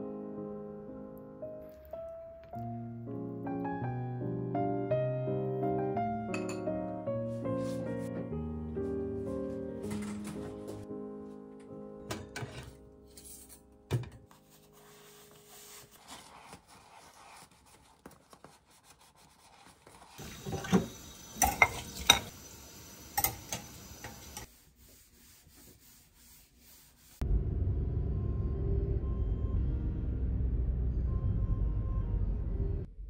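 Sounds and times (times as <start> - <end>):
dishes clattering in a sink: 6.3 - 6.8, 12.0 - 12.8, 20.2 - 22.3, 23.1 - 24.5
soft rubbing and wiping: 7.3 - 8.2, 14.3 - 20.7, 24.2 - 27.2.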